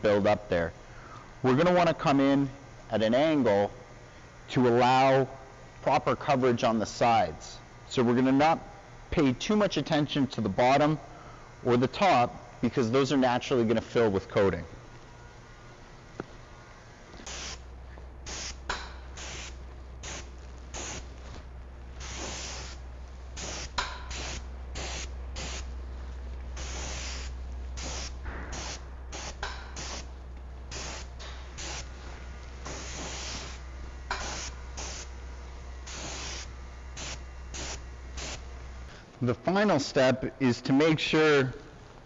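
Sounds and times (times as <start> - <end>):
steady low hum: 0.0 - 42.0
spray gun hissing bursts: 17.1 - 39.0.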